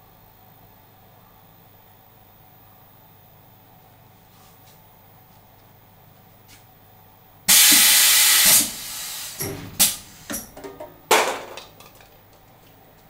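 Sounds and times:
compressed air hiss: 0:07.5 - 0:10.5
sharp pneumatic air blasts: 0:07.5 - 0:10.5.

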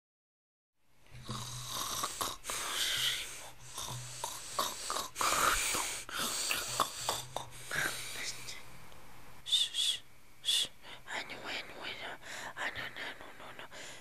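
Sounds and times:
person snoring: 0:01.2 - 0:08.6.

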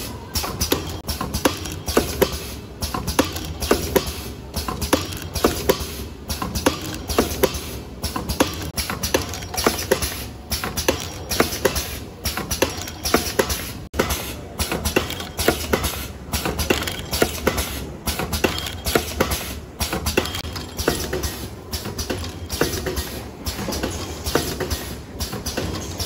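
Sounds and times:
packing machine clattering: 0:14.6 - 0:26.0.

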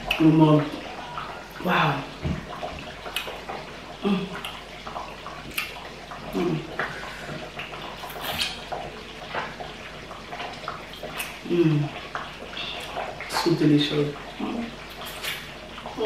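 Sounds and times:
wet finger-licking and lip-smacking: 0:03.1 - 0:03.3, 0:05.5 - 0:05.8.

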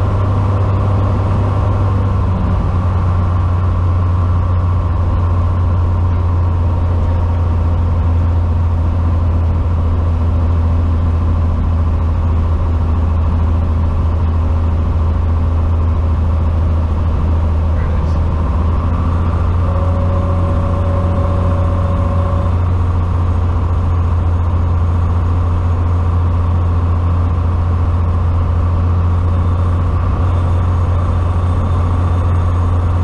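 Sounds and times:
propeller plane engine drone: 0:00.0 - 0:33.0.

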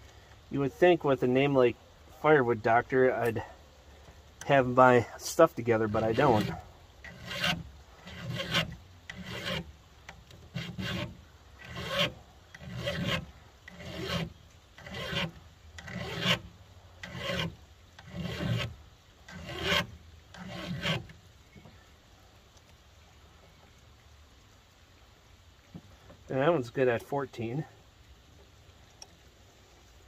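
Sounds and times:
file rasping on chain: 0:06.0 - 0:09.7, 0:10.5 - 0:18.7, 0:19.3 - 0:21.1.

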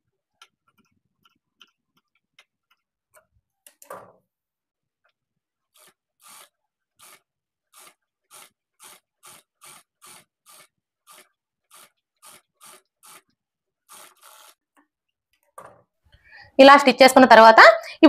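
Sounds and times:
sewing machine stitching: 0:05.7 - 0:14.7.

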